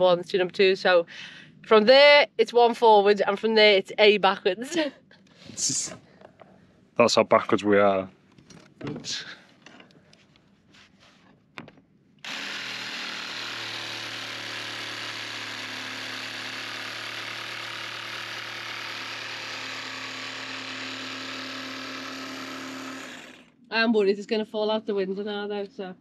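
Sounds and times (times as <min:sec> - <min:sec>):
power tool motor humming: 0:12.2 - 0:23.6.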